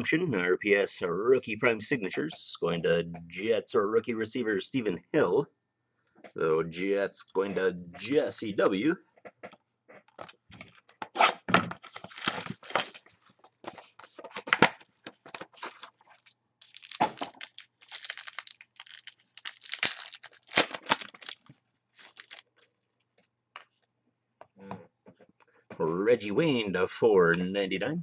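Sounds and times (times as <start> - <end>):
card pack wrapping tearing and crinkling: 11.2 - 13.1, 15.5 - 22.5.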